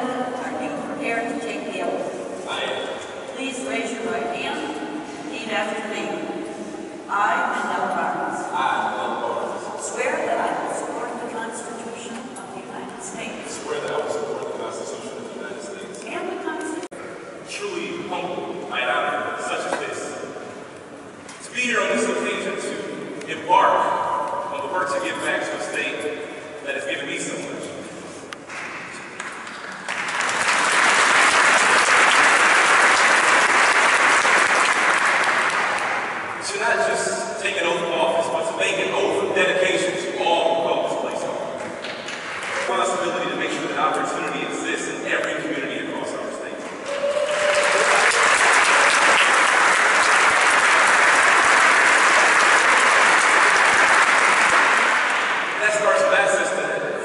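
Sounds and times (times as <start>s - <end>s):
audience applauding: 28.5s - 36.2s, 46.8s - 56.0s.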